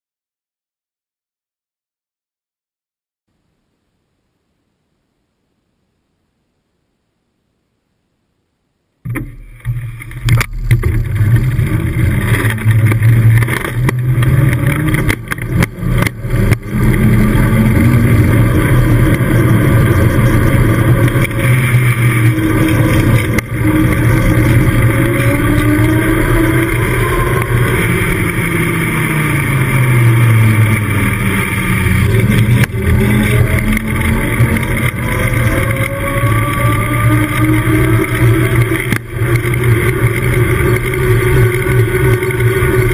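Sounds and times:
hum varying in pitch: 9.0 - 42.9
bicycle tyres rolling on tarmac: 9.5 - 42.9.

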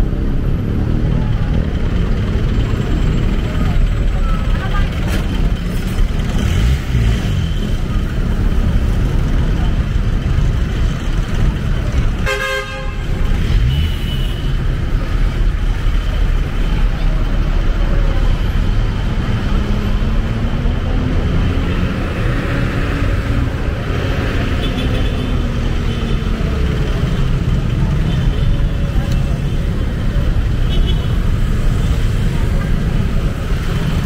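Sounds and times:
crowd voices: 0.0 - 12.3, 14.3 - 34.0
traffic rumble: 0.0 - 34.0
vehicle horn toot: 12.2 - 13.0.

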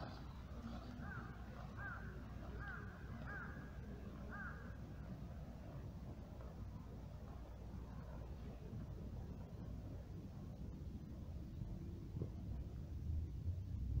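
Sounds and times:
steady low rumble: 0.0 - 14.0
crow cawing: 1.0 - 3.7, 4.3 - 4.8.

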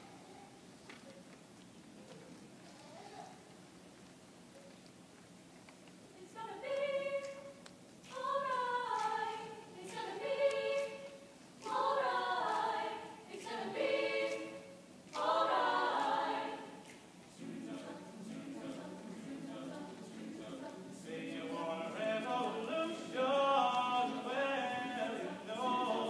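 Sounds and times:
chamber choir singing: 6.2 - 26.0.

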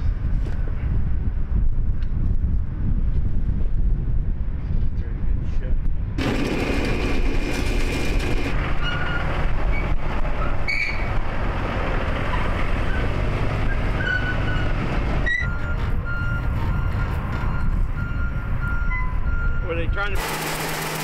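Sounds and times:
diesel engine rumbling: 6.1 - 21.0
reversing alarm beeping: 15.3 - 20.0.

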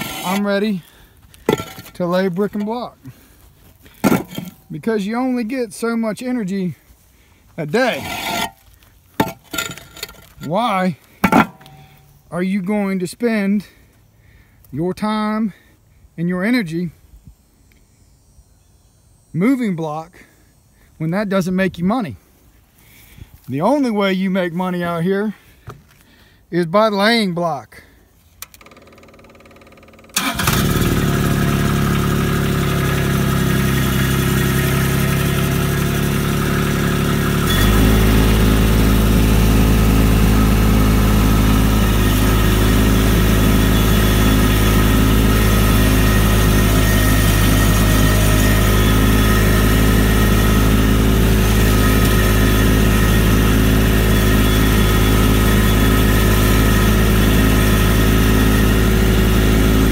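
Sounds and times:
loader engine running: 0.0 - 5.4, 28.6 - 59.9.

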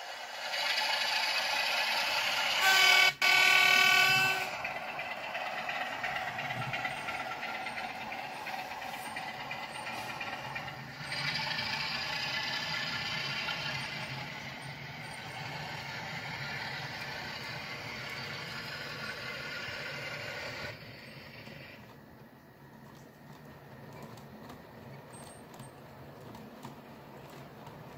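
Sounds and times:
model train rolling on track: 0.0 - 27.9
locomotive horn blast: 2.5 - 4.9.

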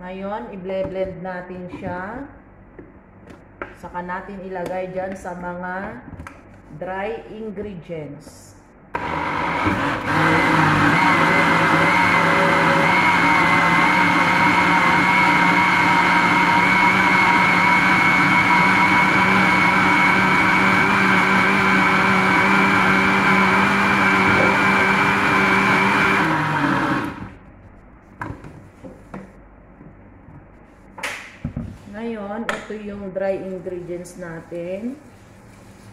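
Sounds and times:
blender running: 8.9 - 27.4.

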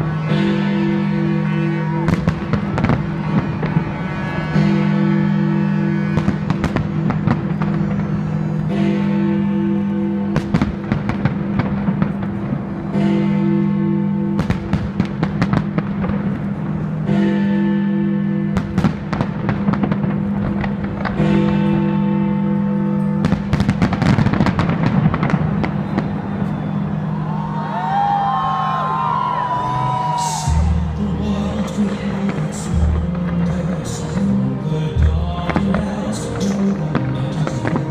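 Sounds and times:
fireworks bangs and crackles: 1.5 - 4.7, 5.6 - 8.9, 10.4 - 13.0, 14.4 - 16.9, 18.6 - 21.7, 23.2 - 37.9
music with held notes: 28.2 - 37.9.

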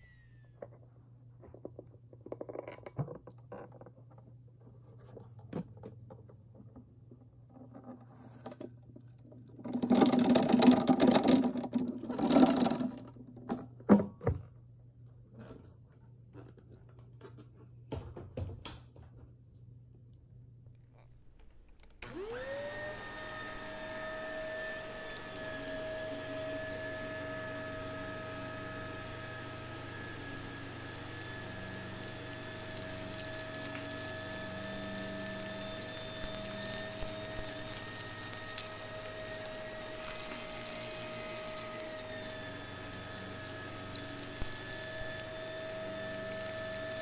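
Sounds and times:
vacuum cleaner motor whine: 0.0 - 0.5, 21.8 - 47.0.

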